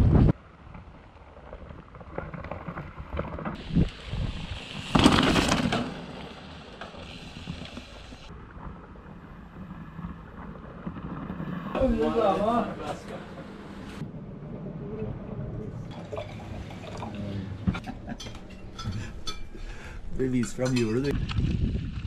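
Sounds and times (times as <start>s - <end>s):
bike tyres on dirt trail: 0.0s - 14.0s, 21.0s - 22.0s
bike knocks and rattles: 4.7s - 8.2s.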